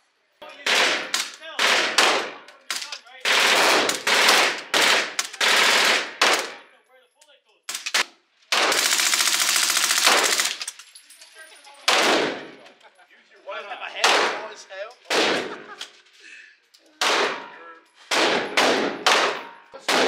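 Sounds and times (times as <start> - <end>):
submachine gun bursts echoing: 8.6 - 10.7.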